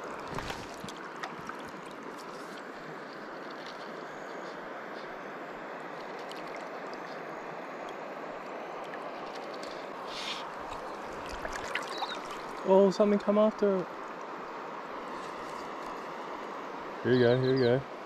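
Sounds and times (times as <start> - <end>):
river water rushing: 0.0 - 17.0
brief hiss: 10.1 - 10.5.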